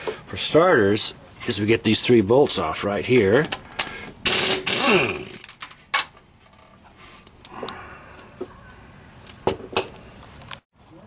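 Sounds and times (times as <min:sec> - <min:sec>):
power tool burst falling in pitch: 0:04.2 - 0:05.4.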